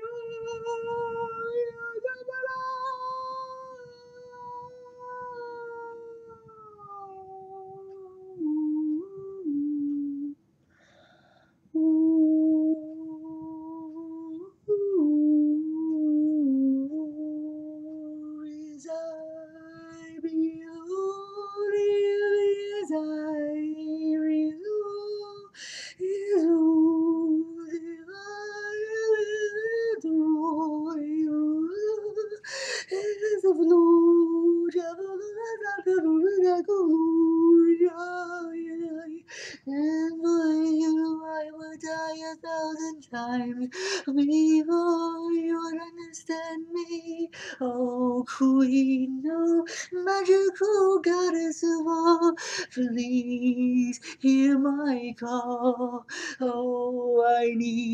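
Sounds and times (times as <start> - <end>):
man singing in high voice: 0.0 - 10.3, 11.8 - 57.9
sharp breaths: 10.7 - 11.7.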